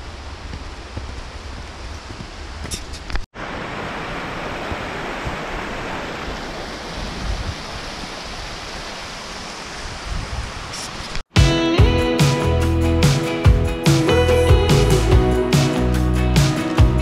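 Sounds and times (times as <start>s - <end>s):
mountain stream rushing: 0.0s - 11.2s
wind buffeting on microphone: 6.9s - 8.0s, 9.8s - 11.2s.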